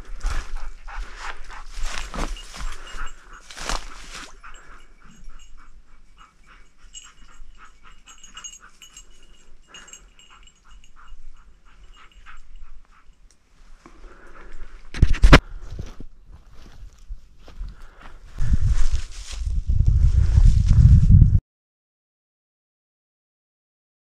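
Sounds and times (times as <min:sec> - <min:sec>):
dogs panting: 0:00.0 - 0:13.2.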